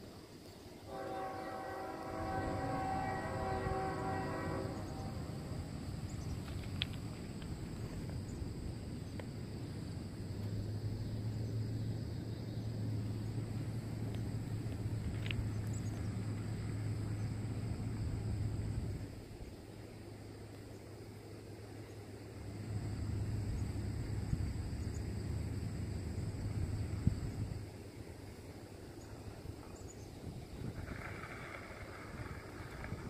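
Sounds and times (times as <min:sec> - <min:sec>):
low steady hum: 0:00.1 - 0:30.8
locomotive air horn chord: 0:00.9 - 0:05.7
outdoor rumble: 0:02.2 - 0:33.0
faint clicks: 0:06.2 - 0:08.2.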